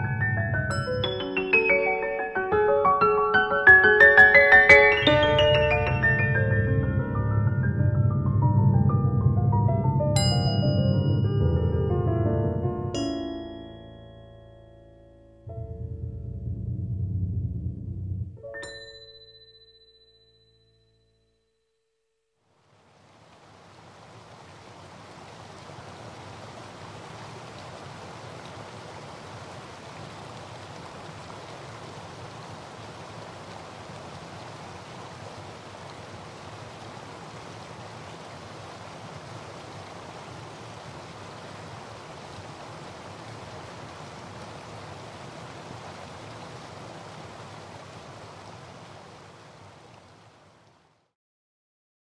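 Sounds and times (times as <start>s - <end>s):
flowing water rushing: 0.0s - 6.6s, 22.6s - 51.1s.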